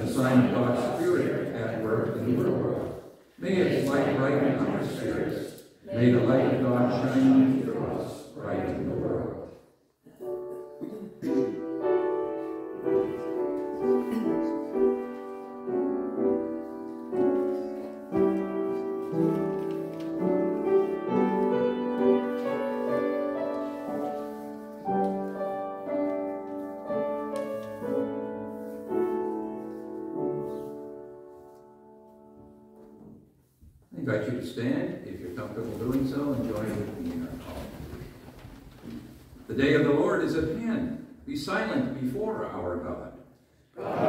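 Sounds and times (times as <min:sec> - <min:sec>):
piano playing held chords: 0:00.0 - 0:09.4, 0:10.1 - 0:33.4.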